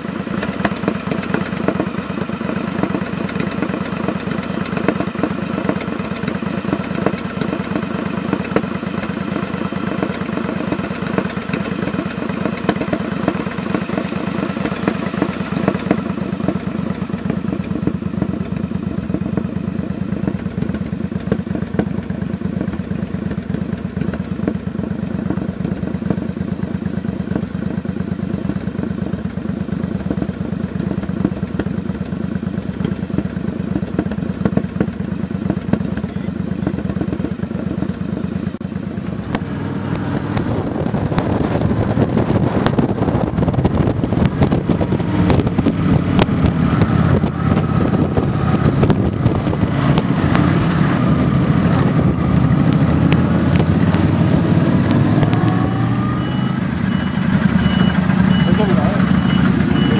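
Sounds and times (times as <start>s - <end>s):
motorcycle engine: 0.0s - 59.9s
wind rush: 39.5s - 55.2s.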